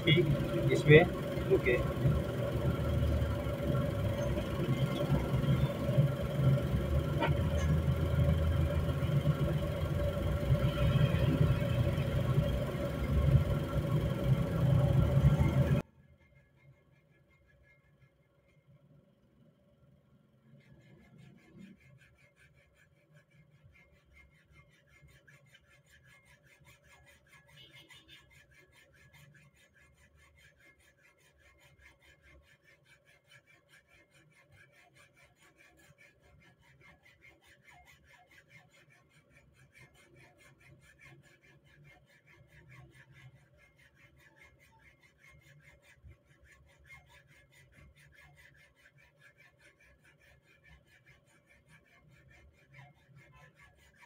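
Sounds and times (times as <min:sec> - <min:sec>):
hacksaw sawing metal: 0:20.8 - 0:54.0.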